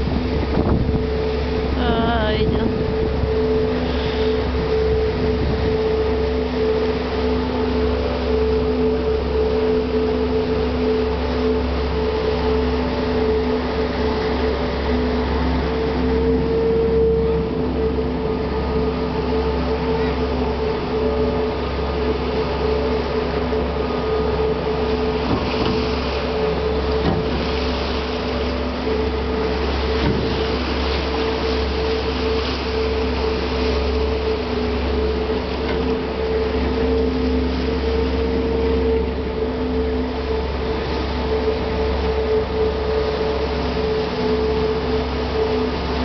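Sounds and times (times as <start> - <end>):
wind noise: 0.0 - 1.1
ferry engine drone: 0.0 - 46.0
propellers churning water: 0.0 - 46.0.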